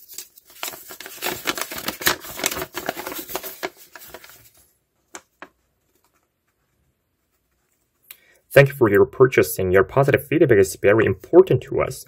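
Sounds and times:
plastic bag crinkling: 0.0s - 5.6s
paper rustling: 0.0s - 8.0s.

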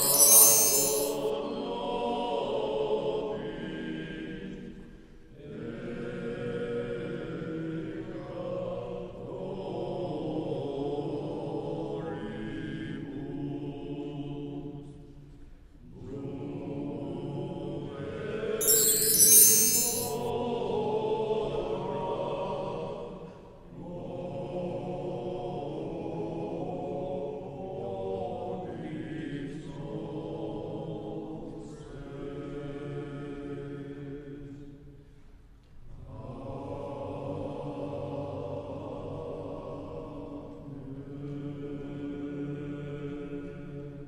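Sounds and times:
voices chanting prayers: 5.4s - 14.5s, 16.0s - 23.1s.

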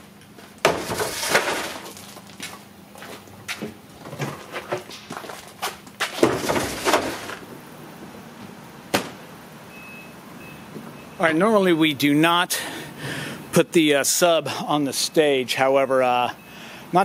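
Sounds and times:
footsteps: 0.3s - 7.4s.

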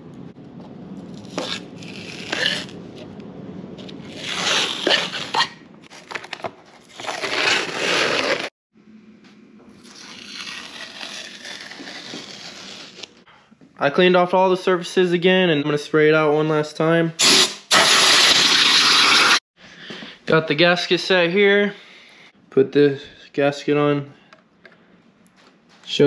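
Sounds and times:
tape tearing off: 1.1s - 3.1s, 3.8s - 8.5s, 9.8s - 13.2s, 17.2s - 19.4s
tape crinkling: 3.8s - 8.5s, 9.8s - 13.2s.

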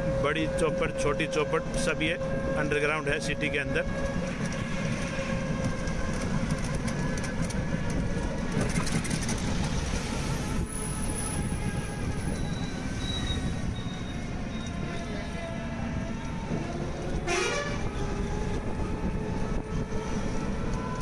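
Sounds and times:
moving vehicle rumble: 0.0s - 21.0s
street traffic: 0.0s - 21.0s.

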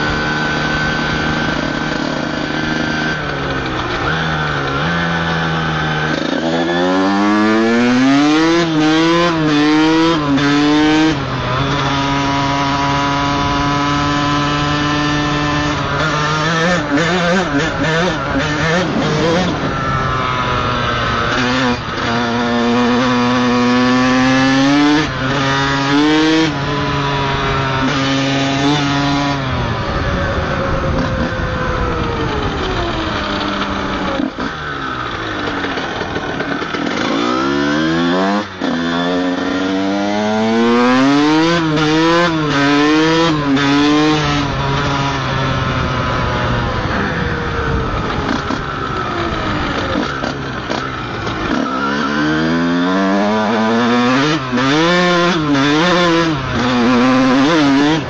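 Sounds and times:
two-stroke motocross engine revving: 0.0s - 58.0s.

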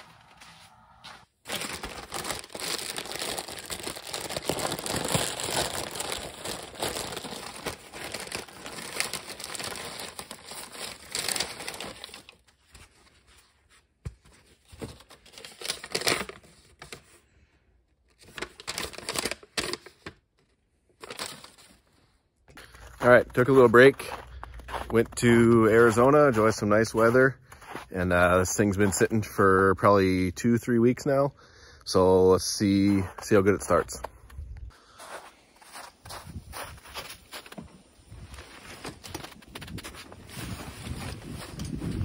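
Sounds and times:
plastic bag and paper crinkling: 1.4s - 13.5s, 35.1s - 42.0s.

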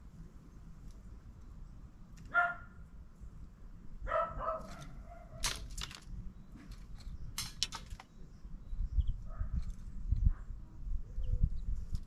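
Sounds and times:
dog barking: 2.3s - 2.8s, 4.0s - 5.4s.

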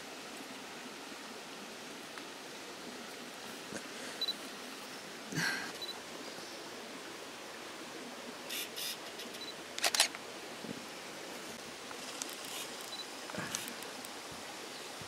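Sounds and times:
steady hiss: 0.0s - 15.0s
camera handling rustles and clicks: 9.1s - 10.2s.

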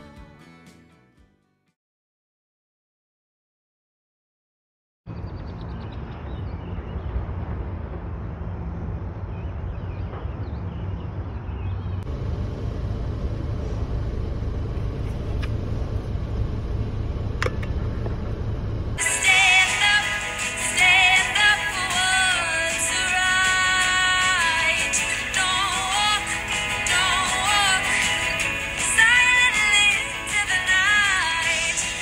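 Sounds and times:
music: 0.0s - 1.8s, 19.0s - 32.0s
low outdoor rumble: 5.1s - 20.0s
rumble inside a car: 12.0s - 19.0s.

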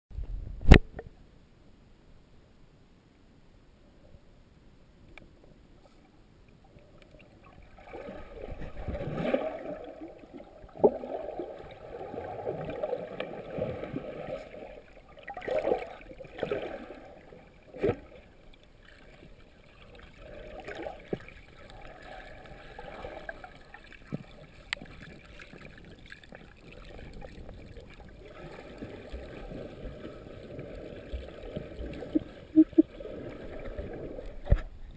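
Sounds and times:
muffled underwater gurgling: 28.2s - 34.5s.

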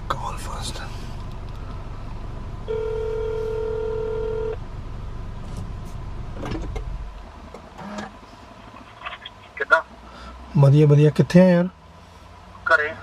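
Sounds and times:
low steady rumble: 0.0s - 13.0s
telephone ringback tone: 2.7s - 4.6s.

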